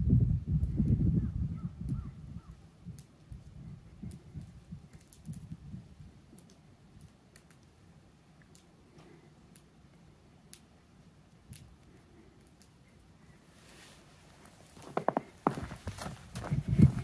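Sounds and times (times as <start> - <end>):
light sharp clicks: 6.3 - 7.7, 8.4 - 9.7, 10.5 - 10.7
footsteps crunching on packed snow: 13.6 - 17.0.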